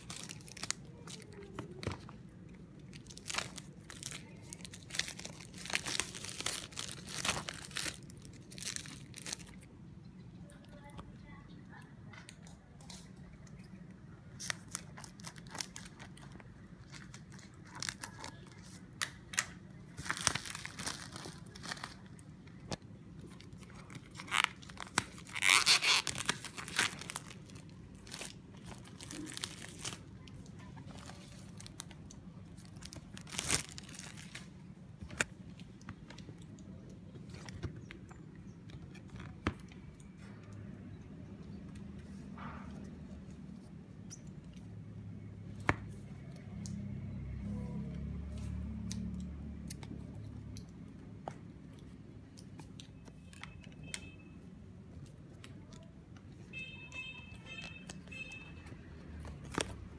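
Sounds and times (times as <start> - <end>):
plastic wrap crinkling and tearing: 0.0 - 9.8, 14.2 - 40.3, 57.0 - 59.9.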